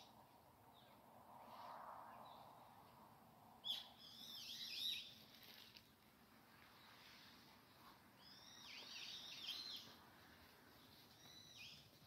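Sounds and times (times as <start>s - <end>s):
small bird calling: 8.2s - 10.0s.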